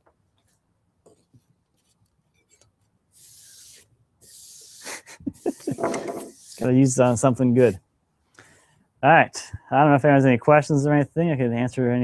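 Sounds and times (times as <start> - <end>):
brushing on wooden tabletop: 1.2 - 7.8.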